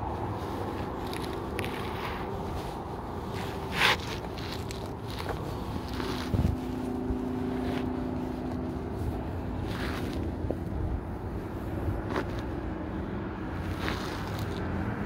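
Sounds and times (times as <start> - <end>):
highway traffic rumble: 0.0 - 15.0
low engine hum: 0.0 - 15.0.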